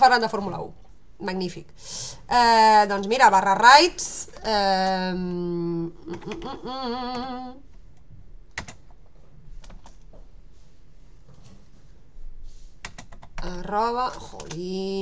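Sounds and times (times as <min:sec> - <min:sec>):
woman humming: 0:04.9 - 0:07.7
keyboard keys tapping: 0:08.5 - 0:09.0.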